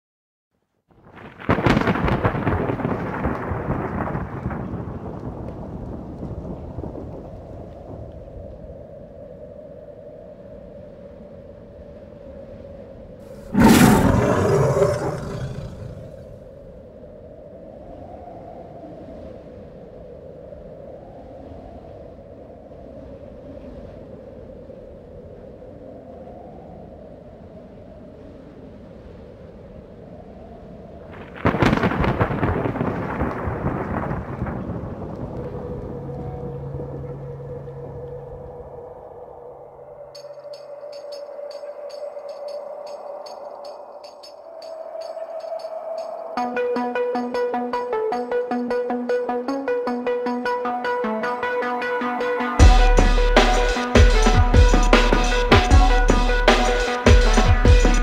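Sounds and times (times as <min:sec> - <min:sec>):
thunderclap crash: 0:01.0 - 0:07.1, 0:13.4 - 0:16.3, 0:31.2 - 0:37.7
loud rumbling: 0:13.5 - 0:16.3
low steady rumble: 0:35.5 - 0:38.7.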